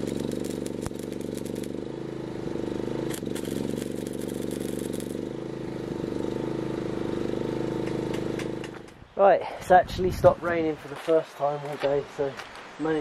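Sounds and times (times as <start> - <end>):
welding arc crackling: 0.0 - 6.5
small engine running: 0.0 - 9.0.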